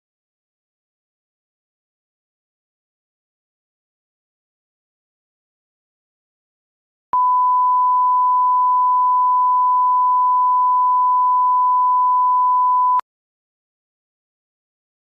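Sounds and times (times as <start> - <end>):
electronic test tone: 7.2 - 13.0.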